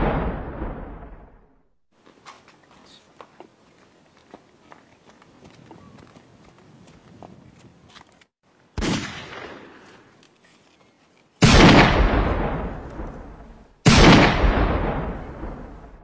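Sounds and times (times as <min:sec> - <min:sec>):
gunshots with long echo: 0:00.0 - 0:01.6, 0:08.8 - 0:09.9, 0:11.4 - 0:16.0.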